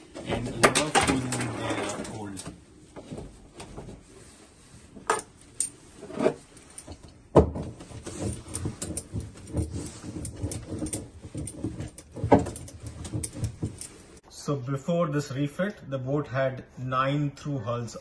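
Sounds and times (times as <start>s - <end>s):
hoses knocking and rustling: 0.0s - 14.2s.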